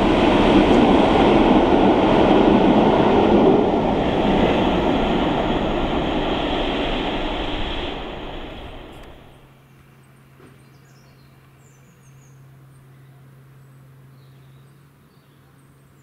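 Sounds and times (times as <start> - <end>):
train rumbling: 0.0 - 9.5
steady low hum: 0.0 - 9.6.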